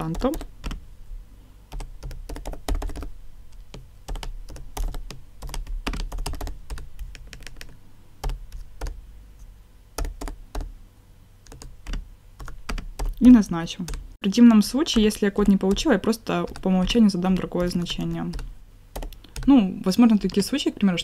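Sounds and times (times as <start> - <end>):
typing on a computer keyboard: 0.0 - 0.8, 1.7 - 9.0, 10.0 - 10.7, 11.4 - 13.2, 14.8 - 20.5.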